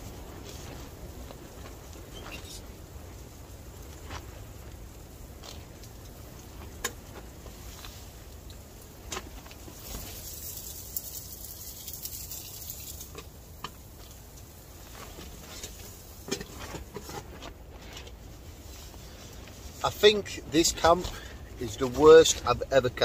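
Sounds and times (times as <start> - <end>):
steady low rumble: 14.1 - 23.0.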